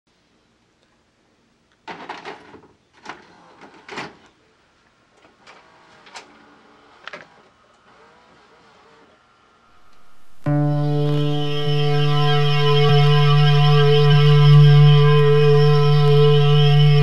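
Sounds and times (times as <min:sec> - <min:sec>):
faint motor whir: 0:05.3 - 0:10.2.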